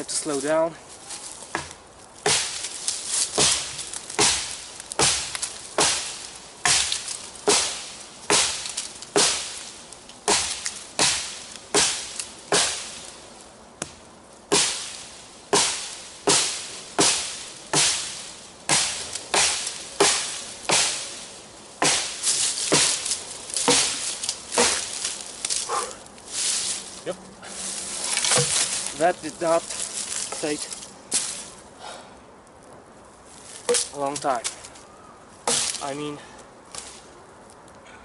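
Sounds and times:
blade chopping into log: 1.5s - 9.7s, 10.3s - 13.0s, 13.8s - 21.2s, 21.8s - 25.8s, 28.1s - 31.3s, 33.6s - 34.6s, 35.4s - 36.1s.

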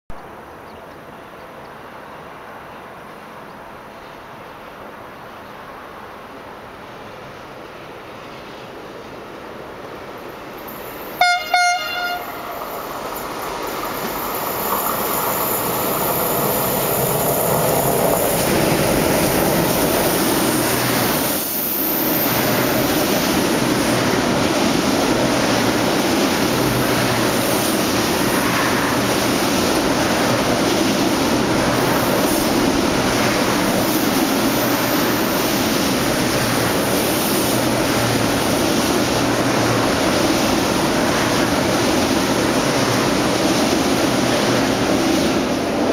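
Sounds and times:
train rolling past: 0.1s - 45.9s
train horn blasts: 11.2s - 12.6s.

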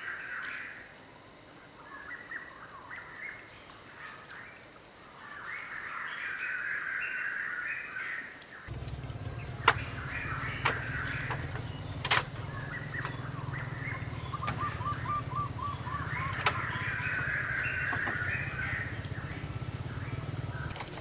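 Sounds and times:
birds chirping and calling: 1.7s - 21.0s
low steady rumble: 8.7s - 21.0s
sharp clicks: 8.8s - 13.6s.

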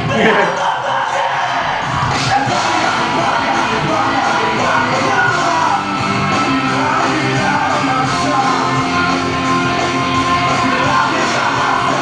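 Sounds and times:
person singing: 0.0s - 9.3s, 10.4s - 12.0s
rock band playing live: 2.0s - 12.0s.

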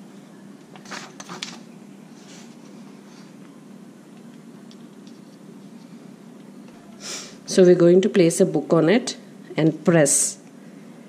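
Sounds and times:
paper rustling: 0.8s - 1.6s.

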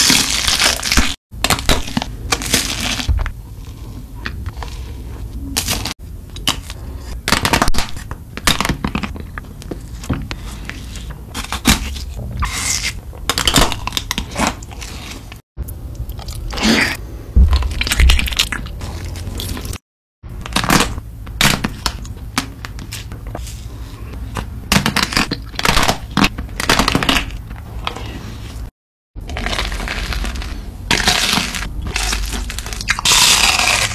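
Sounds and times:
crunching bites into ice cream bars: 29.2s - 33.9s.

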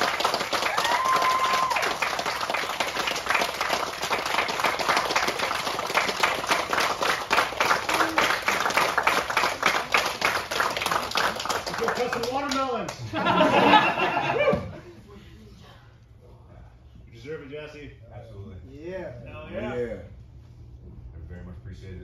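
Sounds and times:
crowd clapping: 0.0s - 13.2s.

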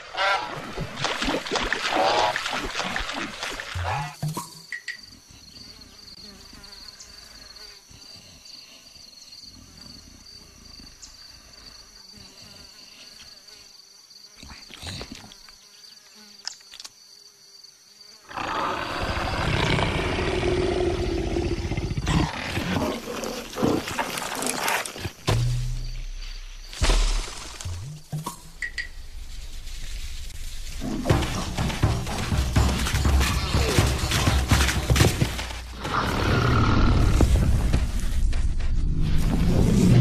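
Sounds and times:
big cat growl: 18.3s - 24.8s, 35.7s - 37.6s
knocks: 31.0s - 35.6s.

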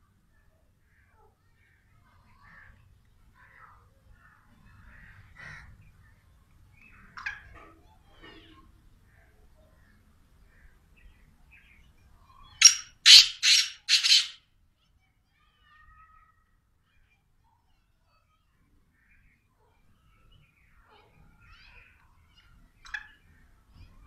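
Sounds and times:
faint bird chirps: 0.3s - 14.4s
bird harsh grating calls: 12.6s - 14.4s.

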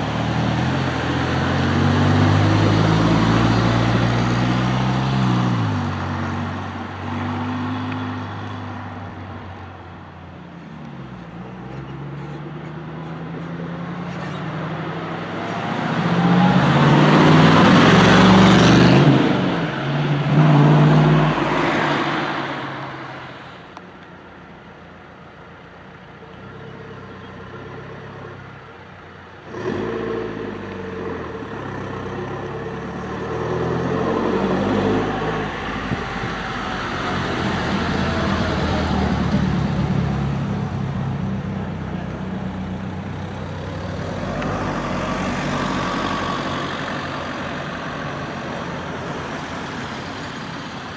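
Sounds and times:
cars passing: 0.0s - 50.9s.

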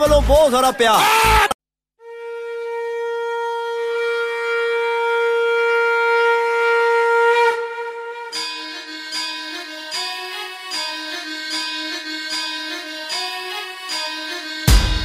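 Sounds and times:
long horn note: 2.0s - 8.4s
instrumental music: 7.7s - 15.0s.

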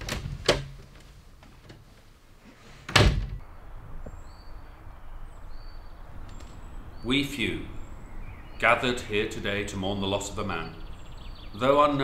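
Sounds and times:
wooden door slamming: 0.0s - 0.9s, 2.9s - 3.4s
faint bird chirps: 3.4s - 12.0s.

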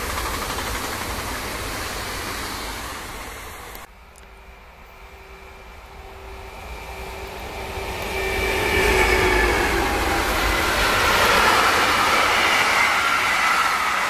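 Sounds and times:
electric locomotive whine: 0.0s - 14.0s.

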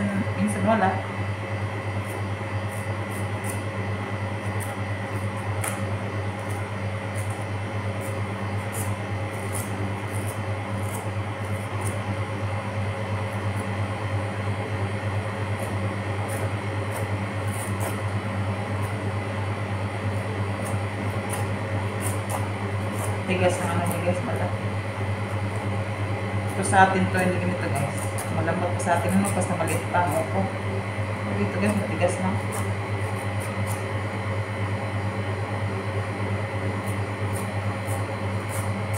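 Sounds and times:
kitchen equipment humming: 0.0s - 38.9s
knife paring vegetable skin: 2.0s - 12.2s, 15.3s - 30.6s, 31.5s - 34.3s, 36.6s - 38.9s.

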